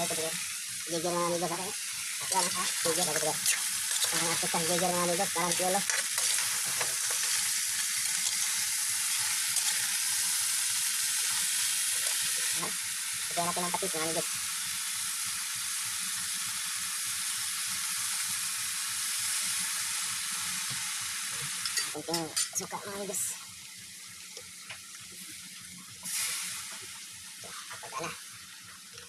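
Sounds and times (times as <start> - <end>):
crabs sizzling in a wok: 0.0 - 29.0
metal ladle stirring: 2.2 - 7.5.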